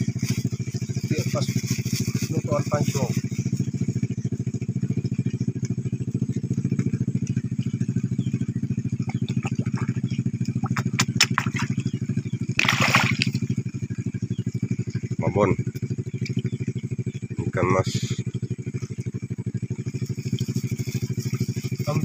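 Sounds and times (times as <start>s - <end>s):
small engine running: 0.0s - 22.0s
water splash: 10.6s - 11.8s, 12.6s - 13.5s.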